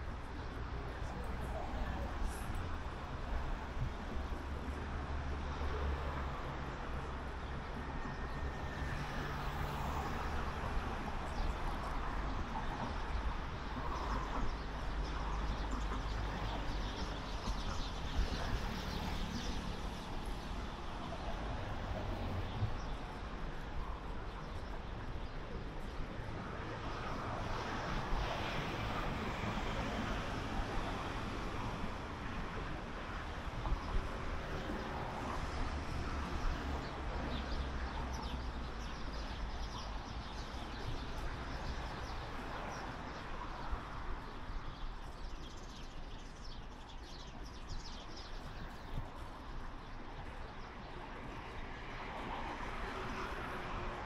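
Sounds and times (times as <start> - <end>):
passing vehicles: 48.4 - 54.0.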